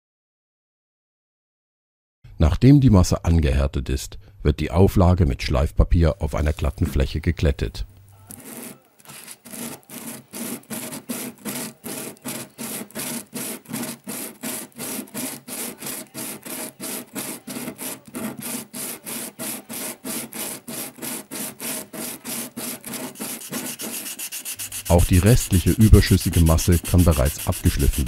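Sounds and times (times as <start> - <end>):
metal part rubbed on sandpaper: 6.3 - 7.3, 8.2 - 28.0.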